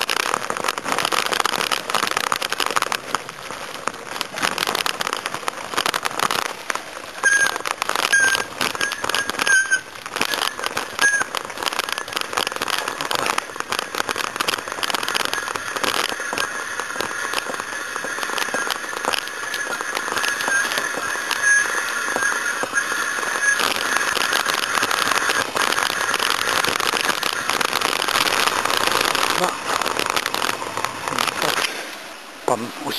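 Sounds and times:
bicycle tyres on rough road: 0.0 - 32.5
thin high whine: 7.2 - 31.9.

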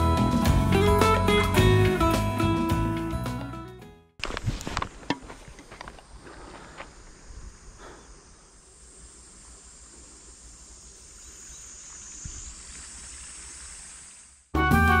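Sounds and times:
insects chirring: 4.2 - 14.5.

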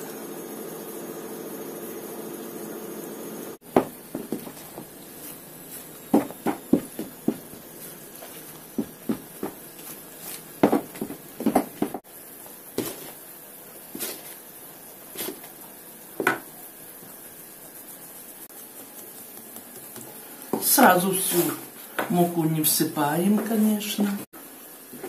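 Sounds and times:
steady low hum: 3.1 - 21.9
dough squelching and slapping: 3.6 - 12.0, 12.6 - 13.2, 13.8 - 14.4, 15.0 - 21.7.

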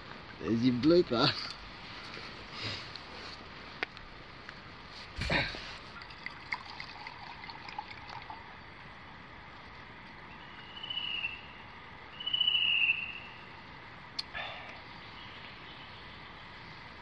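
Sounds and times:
steady background hiss: 0.0 - 17.0
drink trickling into cup: 5.4 - 8.7.

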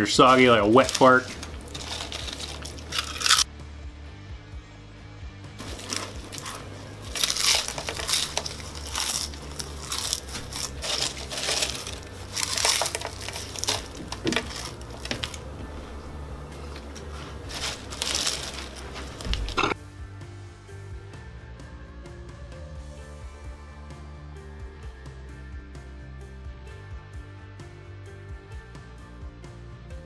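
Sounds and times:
potato chips crunching: 0.2 - 3.5, 5.6 - 19.8.

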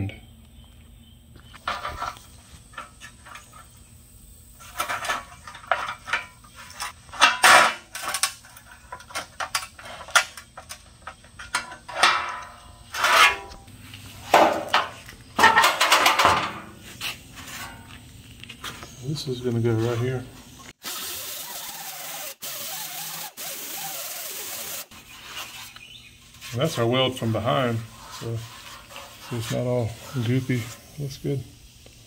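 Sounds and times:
sheet metal clattering: 4.7 - 13.6, 14.2 - 16.8.

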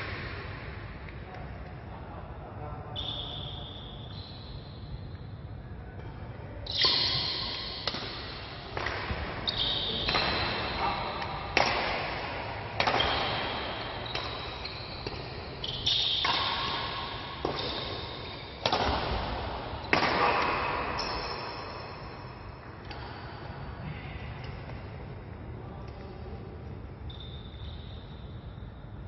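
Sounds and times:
badminton racket hitting shuttlecock: 6.7 - 9.3, 10.0 - 15.6, 16.2 - 21.2.

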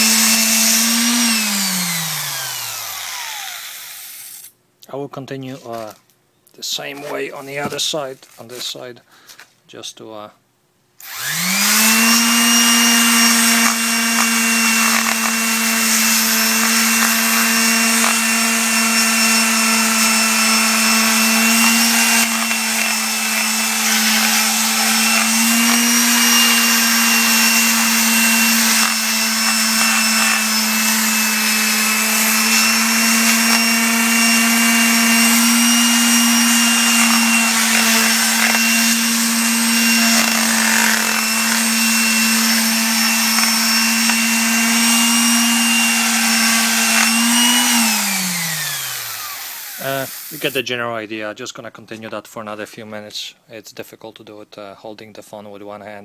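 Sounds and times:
palm sander motor hum: 0.0 - 4.4, 11.0 - 50.6.

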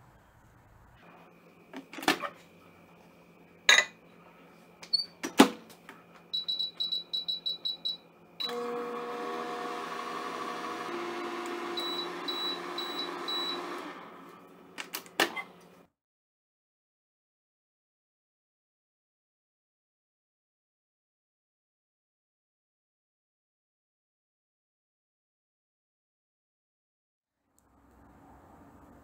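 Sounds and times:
microwave oven humming: 1.0 - 15.9
high button beeps: 6.4 - 8.0
faint beeps: 6.4 - 8.5.

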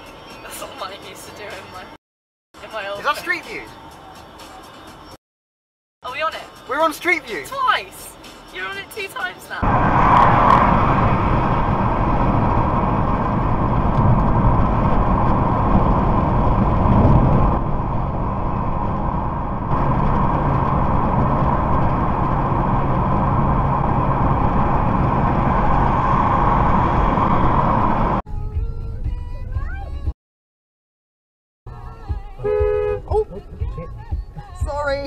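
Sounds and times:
car engine and tyre road noise: 6.1 - 30.1, 31.7 - 35.0.

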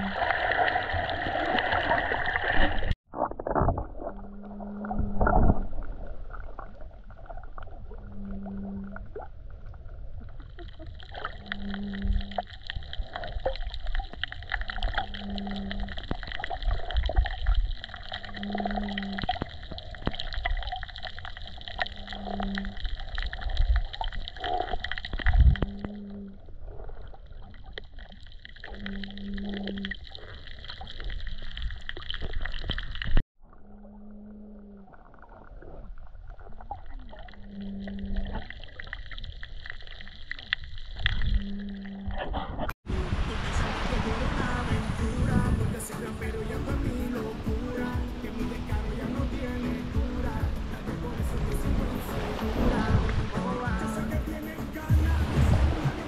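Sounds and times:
underwater water noise: 0.0 - 56.0
dull knocks underwater: 44.6 - 56.0.

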